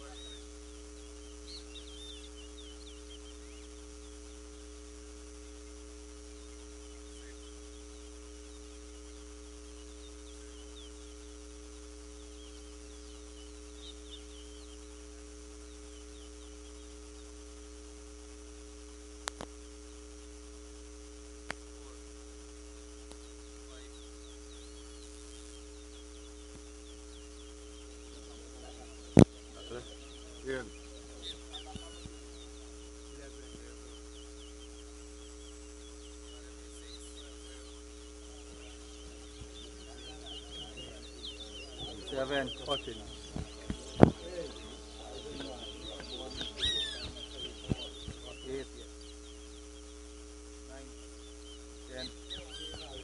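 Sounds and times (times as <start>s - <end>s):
small birds chirping: 0.0s - 53.0s
steady hum with held tones: 0.0s - 53.0s
sharp clicks: 19.2s - 19.6s.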